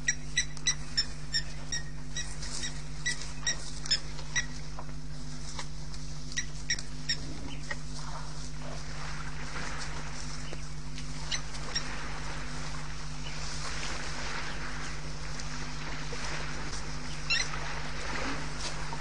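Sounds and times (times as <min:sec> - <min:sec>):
low electrical hum: 0:00.0 - 0:19.0
small animal chirping: 0:17.2 - 0:17.5.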